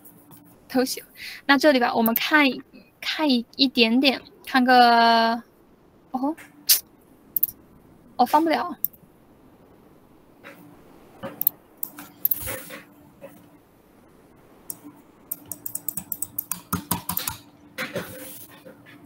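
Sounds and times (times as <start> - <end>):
faint steady hum: 0.0 - 19.0
computer mouse and keyboard clicking: 2.0 - 2.3, 11.2 - 13.4, 14.7 - 18.4.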